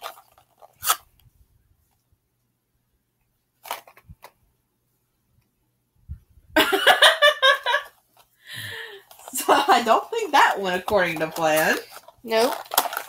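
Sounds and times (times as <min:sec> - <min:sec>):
plastic wrapping crinkling and tearing: 0:00.0 - 0:01.0, 0:10.5 - 0:13.0.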